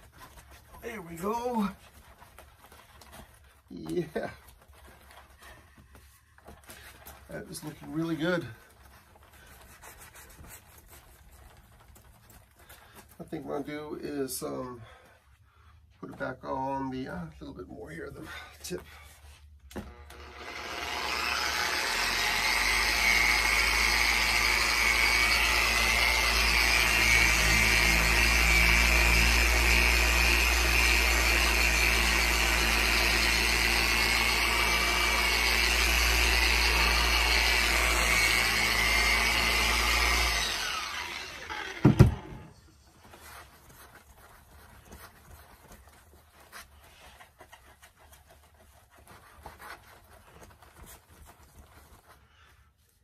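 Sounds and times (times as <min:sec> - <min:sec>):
rag rubbing a surface: 0:08.8 - 0:12.3
electric polisher running: 0:19.8 - 0:42.5.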